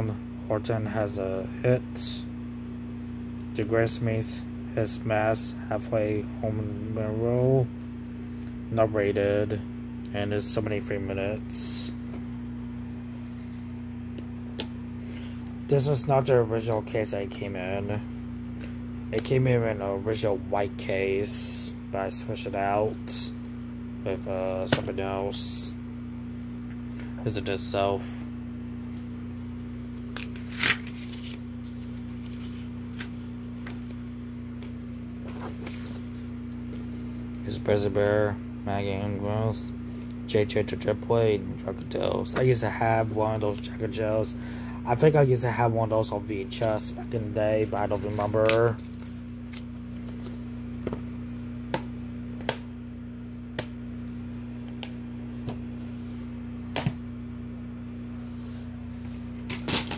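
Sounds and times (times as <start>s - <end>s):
steady low hum: 0.0s - 59.9s
paper insert rustling: 29.8s - 36.3s, 47.6s - 51.0s.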